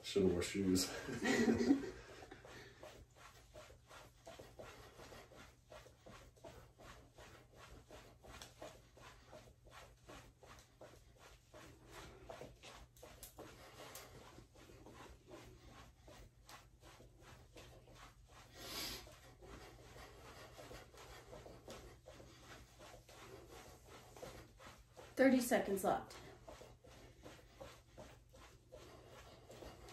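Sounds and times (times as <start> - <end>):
soft footsteps on wooden floor: 0.9 - 29.9.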